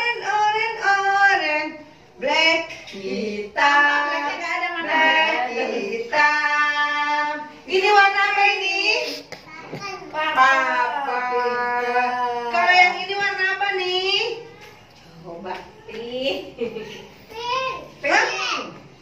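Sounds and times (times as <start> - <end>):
woman and children singing: 0.0 - 9.0, 10.1 - 14.0.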